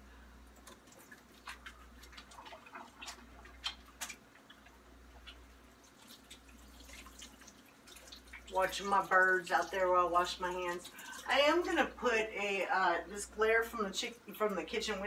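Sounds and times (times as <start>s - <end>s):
low steady hum: 0.0s - 15.0s
clicks and drips at sink: 0.5s - 11.3s.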